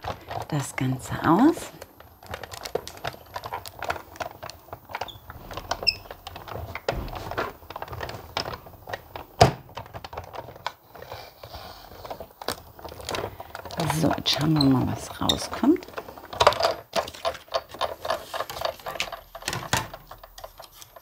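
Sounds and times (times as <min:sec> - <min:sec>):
loud knock: 0:05.3 - 0:08.6.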